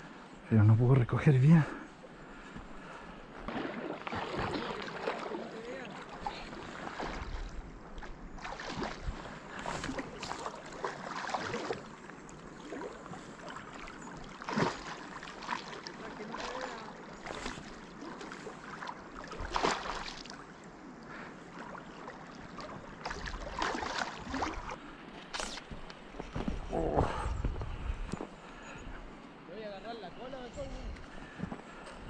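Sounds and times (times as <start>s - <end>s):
river water splashing: 1.8s - 26.3s.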